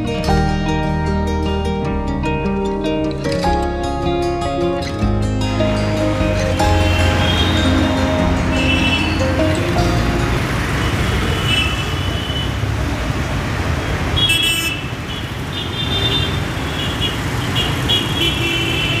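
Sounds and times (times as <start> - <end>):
road traffic noise: 0.0 - 19.0
vehicle horns honking: 5.8 - 12.6, 14.1 - 19.0.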